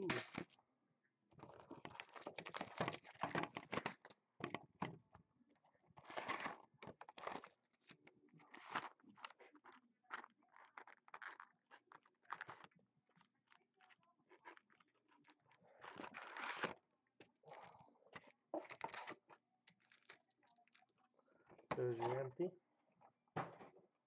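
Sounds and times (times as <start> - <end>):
shrink wrap tearing and crinkling: 0.0 - 0.6, 1.4 - 4.2, 6.0 - 16.8, 18.2 - 21.0
cardboard box handled and opened: 6.0 - 7.9, 8.5 - 9.6, 18.2 - 19.3.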